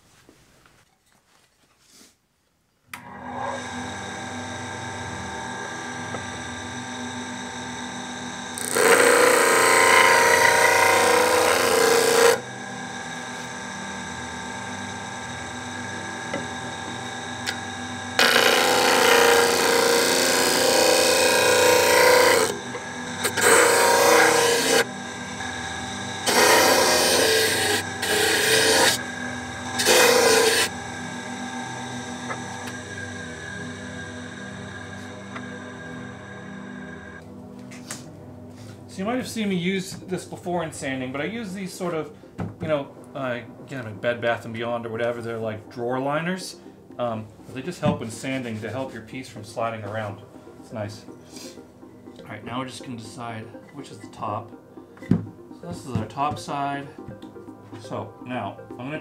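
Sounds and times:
disc sander motor running: 0:03.0 - 0:37.2
wood rasping against sanding disc: 0:08.6 - 0:12.4, 0:18.2 - 0:24.9, 0:26.2 - 0:29.0, 0:29.8 - 0:30.7.

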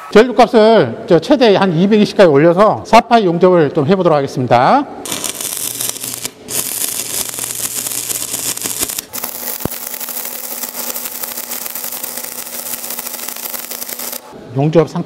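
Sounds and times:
welding arc crackling and sizzling: 0:05.0 - 0:14.4.

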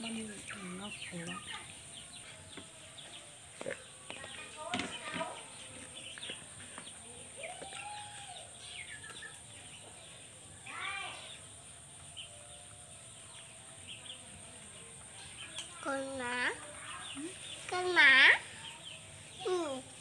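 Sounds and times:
chickens clucking: 0:00.0 - 0:10.3
small birds chirping: 0:00.0 - 0:20.0.

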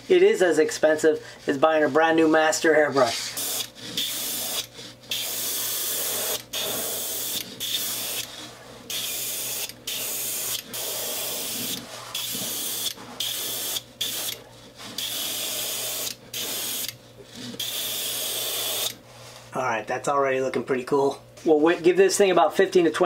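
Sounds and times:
airbrush spraying hiss: 0:03.0 - 0:08.3, 0:08.9 - 0:14.4.

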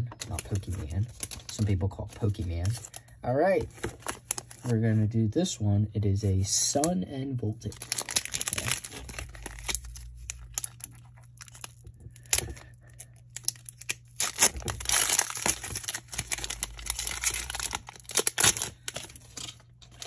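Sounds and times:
faint low hum: 0:00.0 - 0:20.0
foil wrapper crinkling and tearing: 0:00.2 - 0:04.8, 0:07.6 - 0:20.0.

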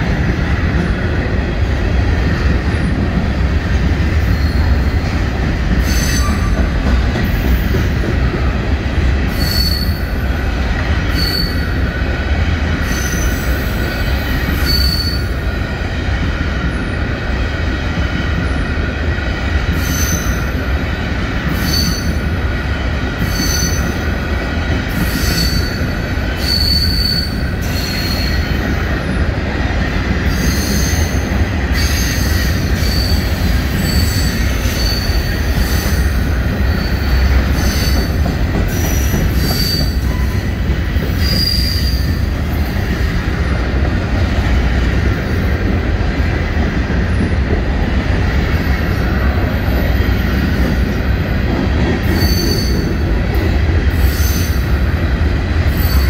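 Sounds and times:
train wheels rumbling on rail: 0:00.0 - 0:56.0
high-pitched wheel squeals: 0:09.3 - 0:10.1, 0:11.1 - 0:11.8, 0:14.5 - 0:15.3, 0:23.2 - 0:24.0, 0:25.1 - 0:25.8, 0:26.4 - 0:28.5, 0:38.8 - 0:40.4, 0:41.1 - 0:42.2, 0:52.1 - 0:53.0.

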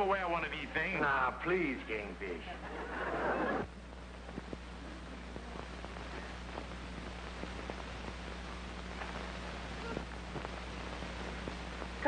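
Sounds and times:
film hiss: 0:00.0 - 0:12.0
low mains hum: 0:00.0 - 0:12.0
faint clicks and crackles: 0:03.6 - 0:12.0.

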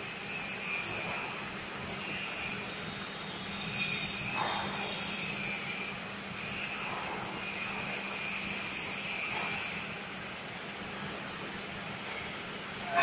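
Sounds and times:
hydraulic pump humming and whining: 0:00.0 - 0:13.0.

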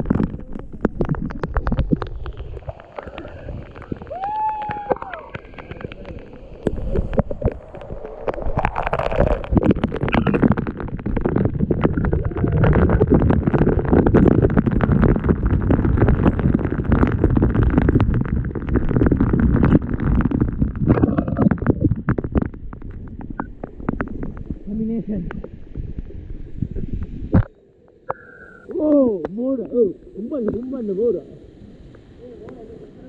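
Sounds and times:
water drops hitting camera: 0:00.0 - 0:25.5
waterfall rushing: 0:02.0 - 0:13.7.

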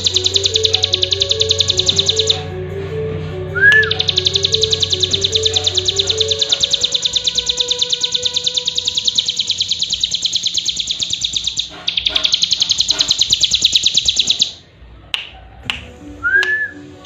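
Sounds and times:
bird singing fast high notes: 0:00.0 - 0:02.5, 0:03.6 - 0:14.6
short rising falling note: 0:00.7 - 0:06.4.

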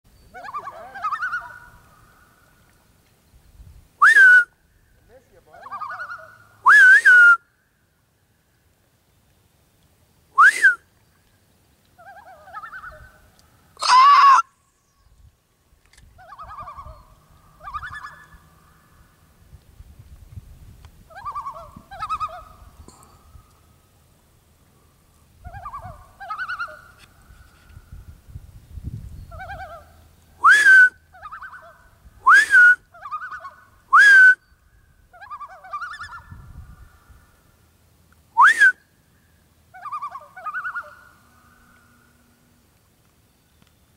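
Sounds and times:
loons calling: 0:00.2 - 0:02.9, 0:04.0 - 0:07.4, 0:11.9 - 0:15.2, 0:16.1 - 0:19.4, 0:21.1 - 0:23.9, 0:24.7 - 0:27.9, 0:29.2 - 0:37.6, 0:38.3 - 0:42.6
person whistling loon imitations: 0:04.0 - 0:04.5, 0:06.6 - 0:07.4, 0:10.4 - 0:10.8, 0:30.4 - 0:31.5, 0:32.2 - 0:33.2, 0:33.9 - 0:34.4, 0:38.4 - 0:38.8.

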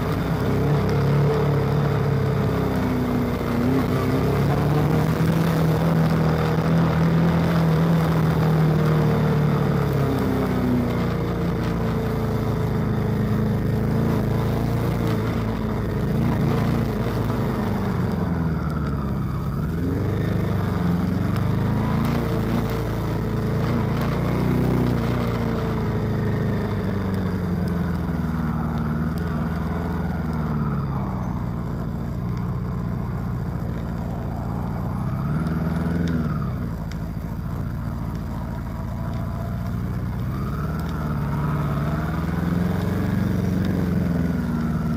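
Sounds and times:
motorcycle engine revving: 0:00.0 - 0:44.9.

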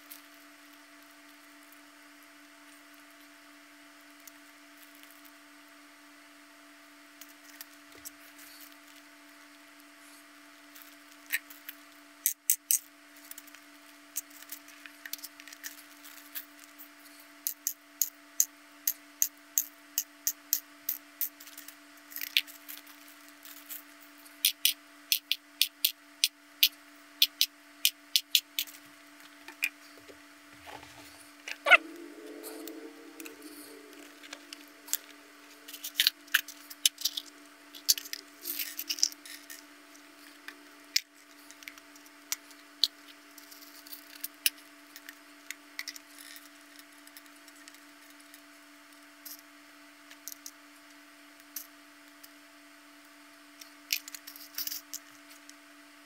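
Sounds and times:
steady low hum: 0:13.1 - 0:56.0.

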